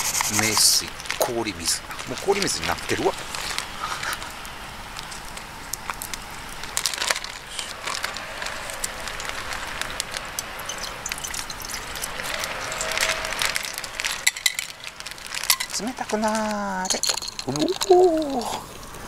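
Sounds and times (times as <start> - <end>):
plastic bag crinkling: 0.0 - 19.0
ice tipping into a pot: 8.2 - 18.7.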